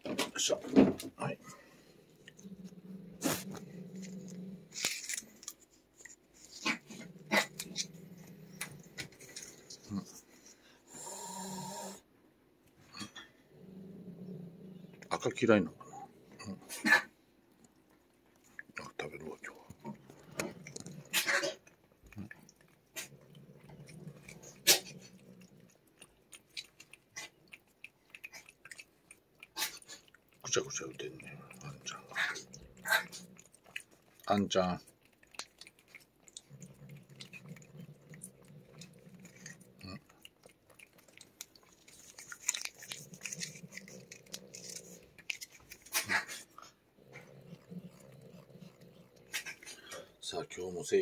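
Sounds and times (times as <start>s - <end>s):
cat licking wet smacking: 23.8s - 46.6s.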